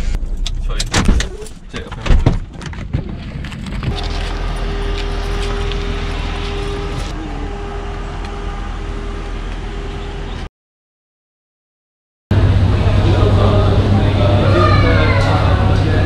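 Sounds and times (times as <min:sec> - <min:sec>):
motor vehicle engine droning: 0:02.9 - 0:10.5, 0:12.3 - 0:16.0.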